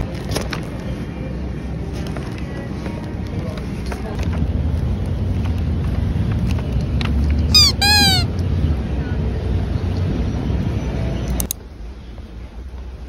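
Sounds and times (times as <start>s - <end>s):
traffic rumble: 0.0s - 13.0s
short high cries: 7.5s - 8.3s.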